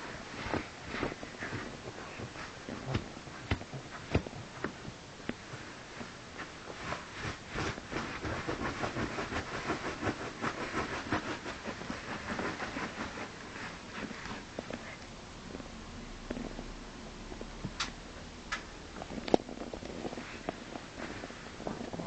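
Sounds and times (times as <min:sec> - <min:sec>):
dog scratching at pet bed: 0:06.4 - 0:14.9.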